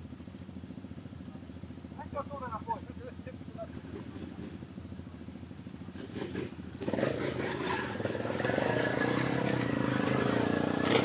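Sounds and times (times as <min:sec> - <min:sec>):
quad engine revving: 0:05.8 - 0:11.0.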